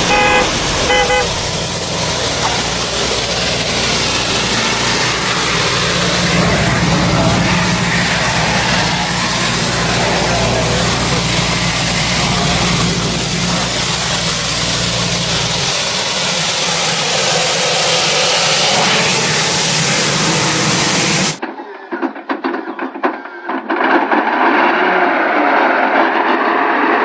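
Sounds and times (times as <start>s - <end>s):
deep engine rumble: 0.0s - 21.4s
gas turbine engine whooshing: 0.0s - 21.4s.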